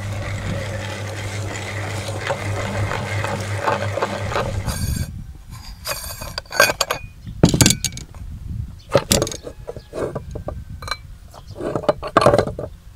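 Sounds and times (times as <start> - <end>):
metal grinder parts clinking: 0.1 - 8.0, 10.0 - 11.0.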